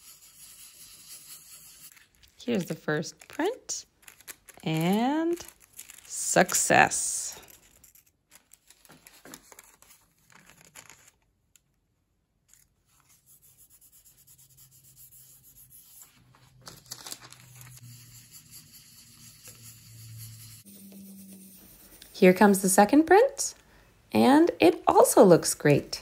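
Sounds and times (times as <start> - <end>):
paper and foil crinkling: 1.9 - 11.3, 16.4 - 17.9
paper rubbed onto foil: 16.8 - 22.0.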